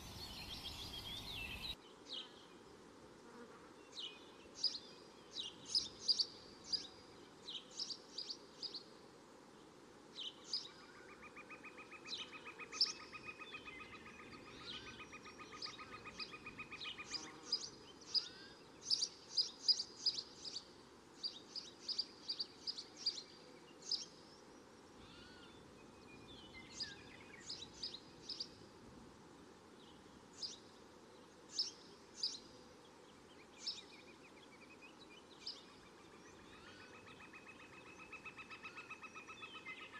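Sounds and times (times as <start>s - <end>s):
small birds chirping: 0.0s - 2.6s, 3.9s - 8.9s, 10.2s - 28.6s, 29.7s - 39.9s
outdoor background hiss: 0.0s - 39.9s.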